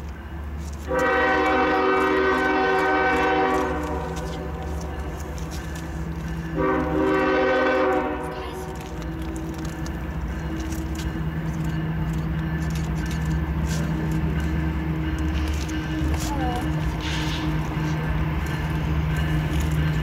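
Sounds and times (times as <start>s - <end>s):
locomotive engine rumble: 0.0s - 20.0s
locomotive air horn chord: 0.8s - 5.3s, 6.4s - 9.0s
scattered clicks: 8.6s - 20.0s.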